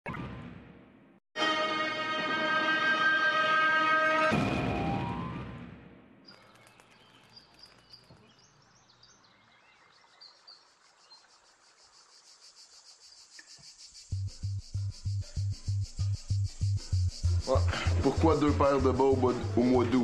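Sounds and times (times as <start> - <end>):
birds chirping: 6.2 - 15.4.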